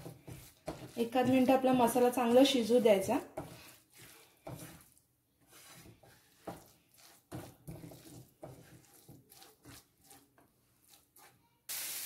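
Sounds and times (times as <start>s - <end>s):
spatula scraping frying pan: 0.0s - 11.4s.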